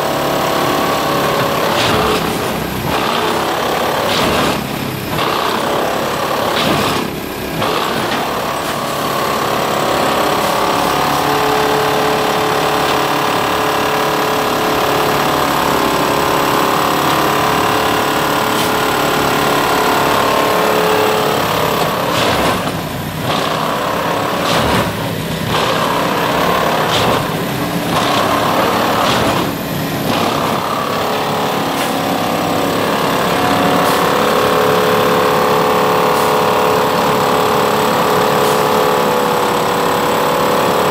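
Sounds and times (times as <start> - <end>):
engine running: 0.0 - 40.9
track maintenance machine working: 0.0 - 40.9.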